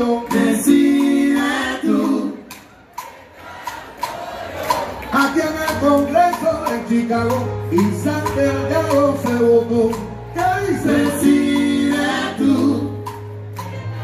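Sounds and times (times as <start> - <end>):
people singing: 0.0 - 6.2, 10.4 - 14.0
live salsa band playing: 0.0 - 14.0.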